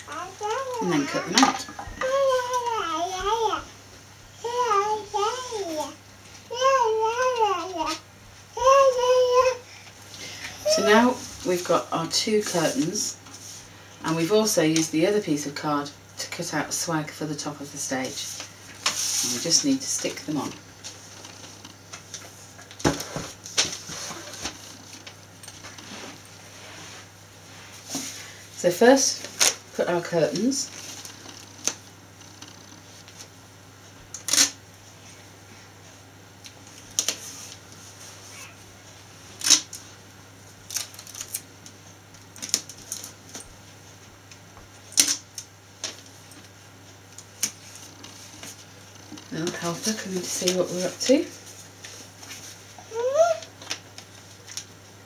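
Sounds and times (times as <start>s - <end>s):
rustling craft materials: 18.0s - 28.4s, 29.0s - 33.3s
taps and crinkles of tape and card: 34.1s - 34.6s, 40.6s - 43.5s.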